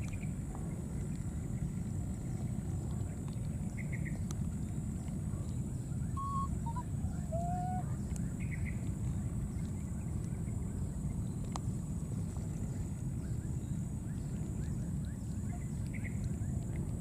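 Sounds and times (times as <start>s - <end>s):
steady low rumble: 0.0s - 17.0s
faint whistle-like calls: 6.0s - 8.1s.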